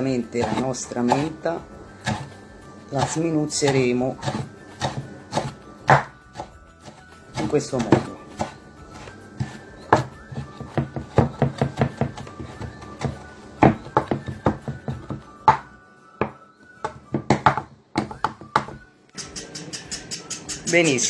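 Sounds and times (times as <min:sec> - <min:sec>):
background music: 0:00.0 - 0:21.0
knife chopping mint: 0:00.3 - 0:01.4, 0:02.0 - 0:15.7.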